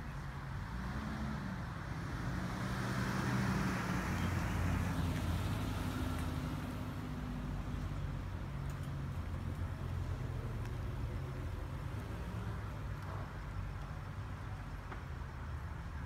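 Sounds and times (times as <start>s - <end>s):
car driving past: 0.6s - 8.2s.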